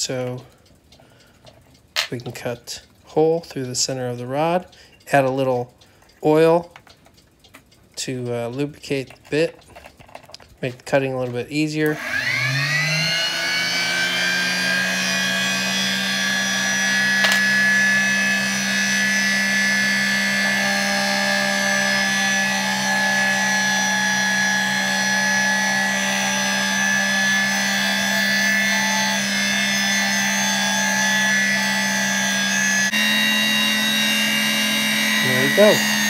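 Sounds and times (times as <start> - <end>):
lathe motor hum and whine: 11.8 - 36.0.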